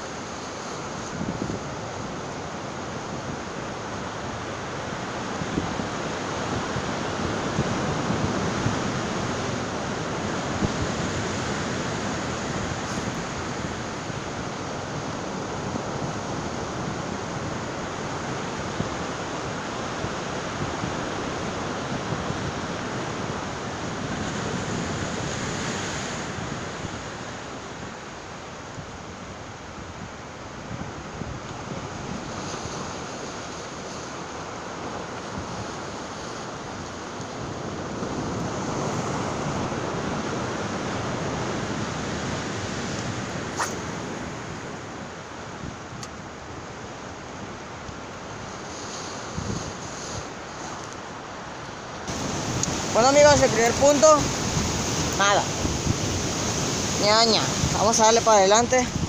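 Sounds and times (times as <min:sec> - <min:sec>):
wind on microphone: 0:00.0 - 0:51.3, 0:52.1 - 0:59.0
surf breaking over rocks: 0:52.0 - 0:59.0.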